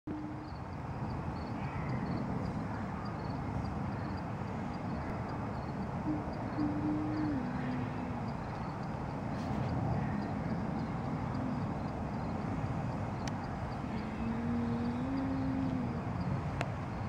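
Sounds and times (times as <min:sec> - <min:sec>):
woman humming: 0:00.1 - 0:00.6, 0:06.0 - 0:08.4, 0:13.8 - 0:16.5
faint high ticks: 0:04.7 - 0:17.0.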